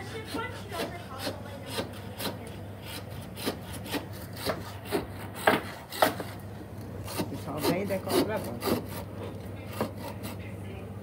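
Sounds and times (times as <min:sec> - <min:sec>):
saw rasping through bone: 0:00.0 - 0:06.4, 0:07.0 - 0:10.5.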